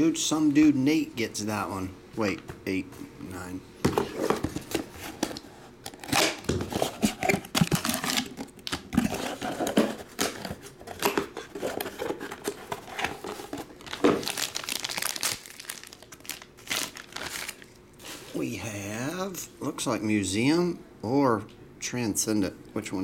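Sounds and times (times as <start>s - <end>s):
plastic wrapper crinkling: 6.0s - 18.4s.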